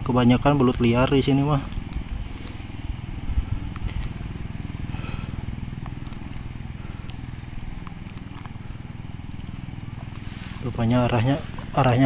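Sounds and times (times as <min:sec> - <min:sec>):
small engine running: 0:00.0 - 0:12.0
faint light clicks: 0:05.8 - 0:07.2.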